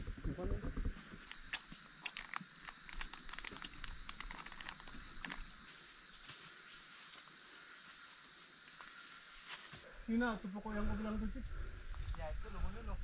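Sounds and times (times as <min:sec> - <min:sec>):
pulsing insect buzz: 0:00.0 - 0:09.8
rainforest insects droning: 0:00.0 - 0:13.0
light clicks: 0:01.3 - 0:05.5.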